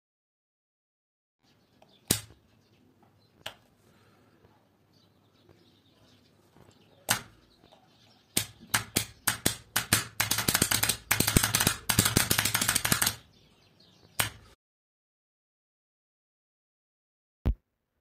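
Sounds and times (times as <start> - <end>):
contactor clicking and chattering: 8.4 - 13.2.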